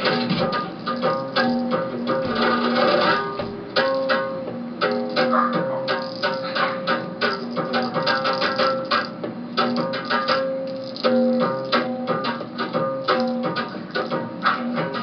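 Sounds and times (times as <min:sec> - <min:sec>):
plucked string instrument music: 0:00.0 - 0:15.0.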